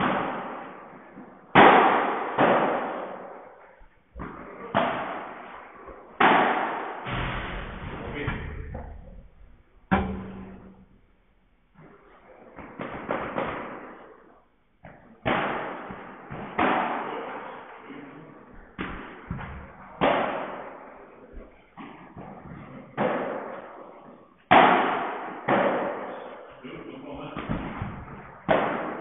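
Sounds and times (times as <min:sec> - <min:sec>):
rackets hitting ball: 0:00.0 - 0:11.0, 0:11.7 - 0:26.6, 0:27.2 - 0:29.0
ball bouncing off court and glass: 0:09.9 - 0:10.8, 0:18.5 - 0:23.9, 0:27.4 - 0:29.0.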